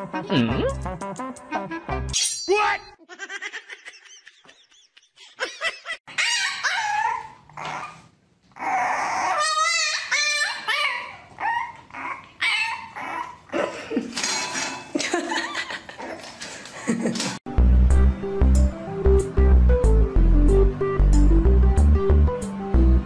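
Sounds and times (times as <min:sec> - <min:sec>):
puppy whining and yipping: 0:06.1 - 0:13.5
dog whining: 0:06.1 - 0:13.7.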